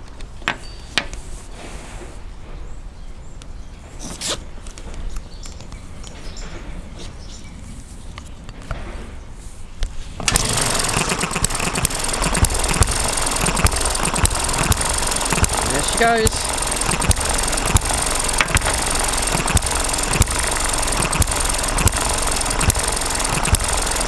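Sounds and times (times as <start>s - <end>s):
handling noises and small clicks: 4.2s - 6.6s
engine running with rattly firing: 10.2s - 24.0s
starter cord pull: 10.2s - 24.0s.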